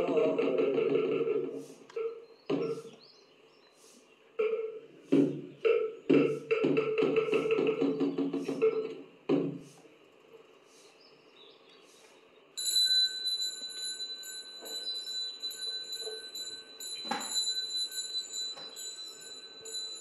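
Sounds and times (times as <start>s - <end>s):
small bell ringing: 12.6s - 20.0s.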